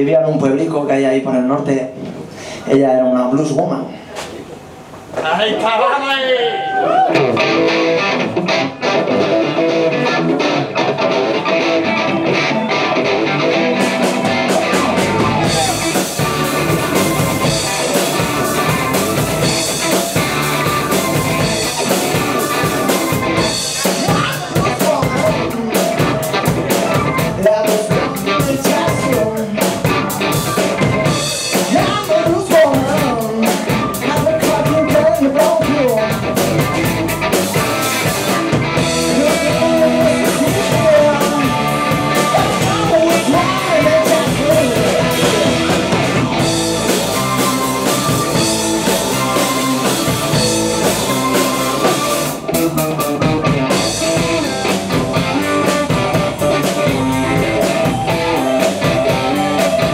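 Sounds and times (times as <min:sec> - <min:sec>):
blues-rock band playing: 0:06.5 - 0:59.9
man singing: 0:23.8 - 0:30.1, 0:31.5 - 0:36.4, 0:38.9 - 0:46.0.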